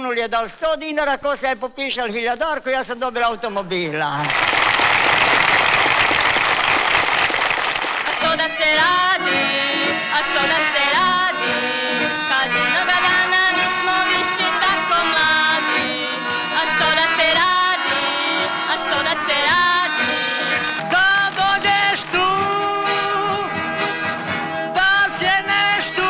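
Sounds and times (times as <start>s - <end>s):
audience applause: 4.2s - 8.3s
dance band playing: 4.2s - 26.0s
young woman singing: 8.1s - 20.2s.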